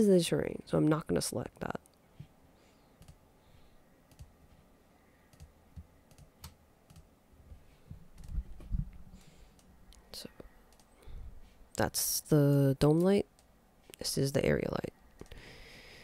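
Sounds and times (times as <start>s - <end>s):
computer mouse and keyboard clicks: 3.0s - 3.2s, 4.1s - 4.3s, 5.3s - 7.1s, 8.1s - 8.4s, 10.7s - 11.0s
soft low thumps: 7.4s - 9.2s.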